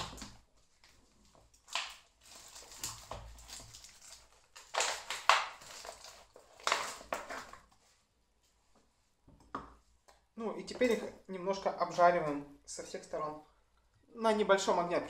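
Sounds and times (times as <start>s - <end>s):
plastic packaging crinkling: 0.0s - 7.8s.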